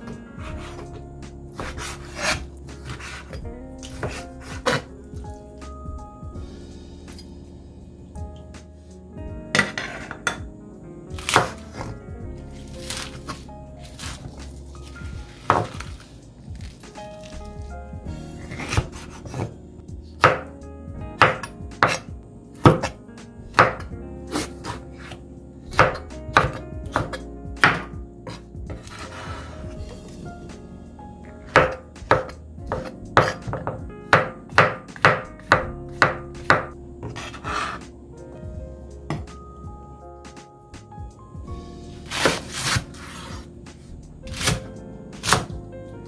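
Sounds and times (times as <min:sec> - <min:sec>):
soft background music: 0:00.0 - 0:46.0
knife chopping on cutting board: 0:01.6 - 0:04.9, 0:11.2 - 0:11.9, 0:12.7 - 0:16.0, 0:18.5 - 0:19.5, 0:20.2 - 0:20.5, 0:21.2 - 0:29.5, 0:31.5 - 0:37.8, 0:42.1 - 0:43.4, 0:44.3 - 0:45.5.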